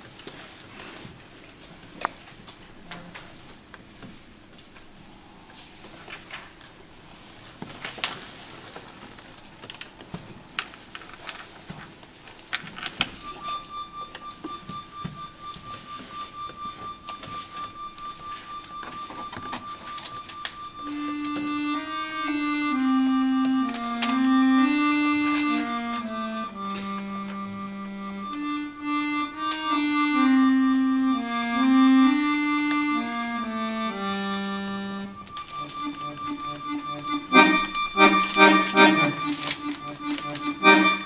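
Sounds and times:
accordion playing: 19.1 - 41.0.

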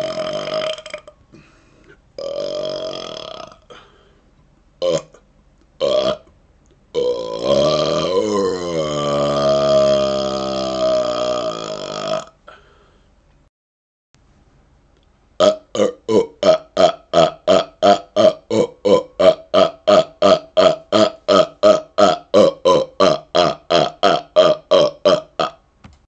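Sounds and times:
man burping: 0.0 - 1.6, 2.2 - 4.0, 4.8 - 5.2, 5.8 - 6.3, 6.9 - 12.7, 15.4 - 25.6.

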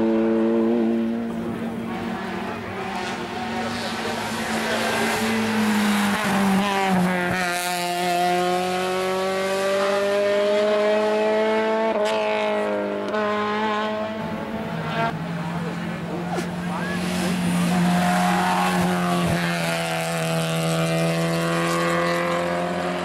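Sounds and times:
race car engine accelerating: 0.0 - 23.0.

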